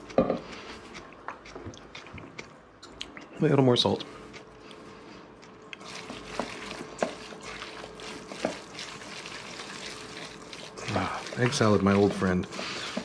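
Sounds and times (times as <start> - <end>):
wet stirring and squishing: 5.4 - 13.0.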